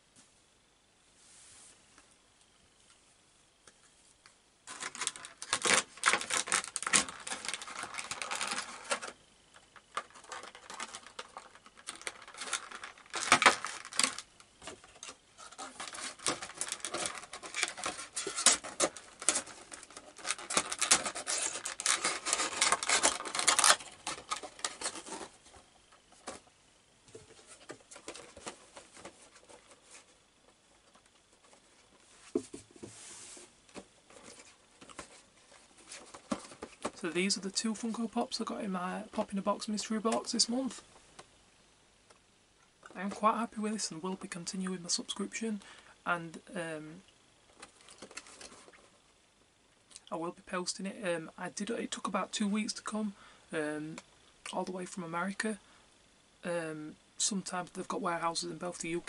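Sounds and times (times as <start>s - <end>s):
plastic packaging crackling: 4.6s - 26.5s, 47.5s - 49.0s.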